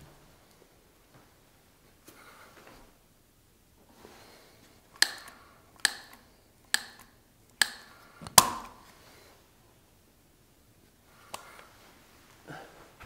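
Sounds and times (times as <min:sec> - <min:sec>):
foam gun trigger clicks: 0:05.0 - 0:08.7.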